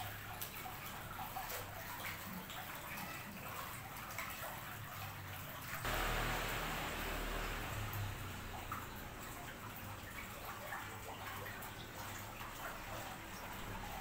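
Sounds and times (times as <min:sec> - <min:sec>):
steady rushing hiss: 0:05.9 - 0:08.2.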